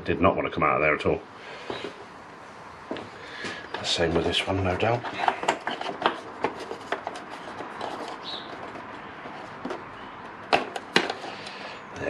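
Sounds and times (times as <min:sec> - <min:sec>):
screwdriver scraping plastic: 0:03.8 - 0:11.6.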